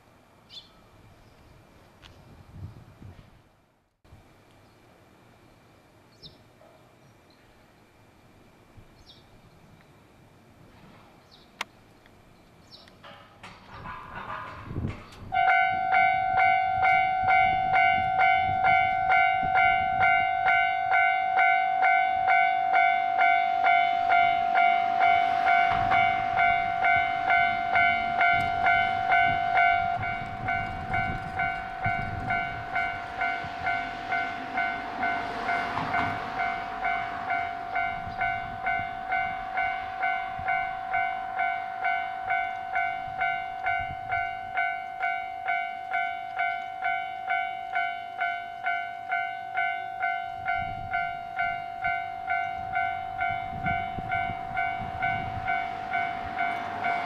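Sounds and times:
level crossing warning bell: 13.8s - 57.0s.

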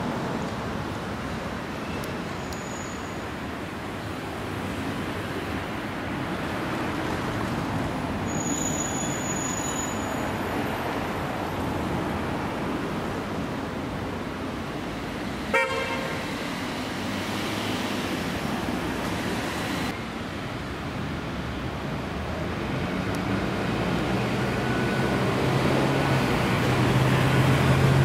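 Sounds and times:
city street traffic: 0.0s - 28.0s
vehicle horn toot: 15.5s - 16.2s.

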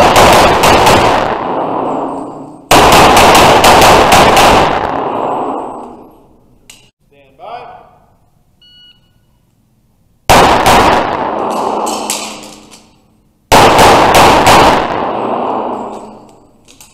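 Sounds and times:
rapid pistol fire echoing: 0.0s - 6.1s, 10.3s - 12.6s, 13.5s - 16.2s.

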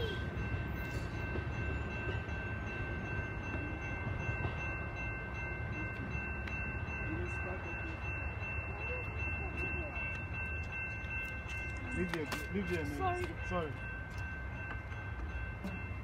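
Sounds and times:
train rumbling: 0.0s - 16.0s.

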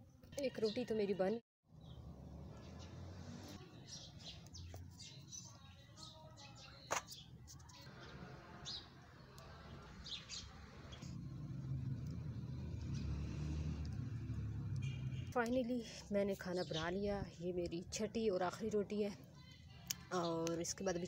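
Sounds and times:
small birds chirping: 1.7s - 18.3s.

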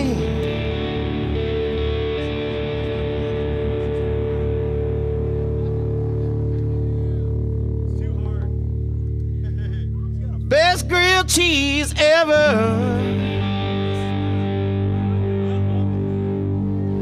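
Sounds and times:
person singing: 0.0s - 3.6s, 10.5s - 17.0s
bass line: 0.0s - 17.0s
distorted electric guitar: 0.0s - 17.0s.

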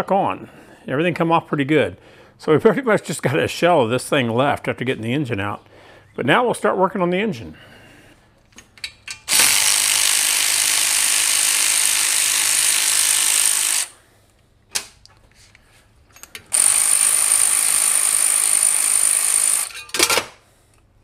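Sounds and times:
power ratchet whirring: 9.2s - 14.0s, 16.4s - 19.9s.

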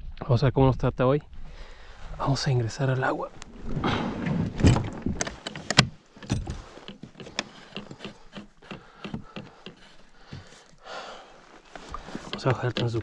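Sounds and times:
kayak hull scraping on gravel: 1.8s - 8.6s, 9.8s - 13.0s
gear clunking: 3.3s - 13.0s.

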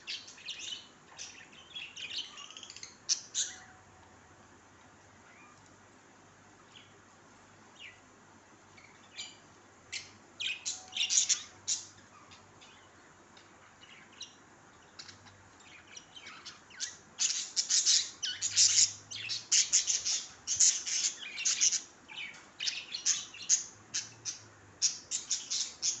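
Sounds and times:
small parrots chirping: 0.0s - 3.8s, 8.8s - 12.9s, 13.8s - 26.0s.

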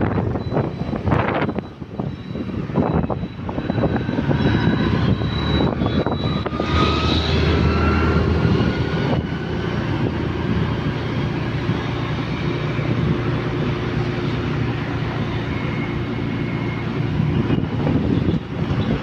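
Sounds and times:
motorbike engine drone: 0.0s - 19.0s
wind on microphone: 0.0s - 19.0s.

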